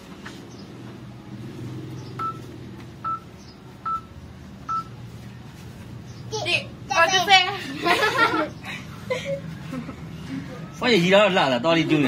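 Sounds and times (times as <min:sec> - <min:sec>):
short electronic beeps: 0:02.2 - 0:05.0.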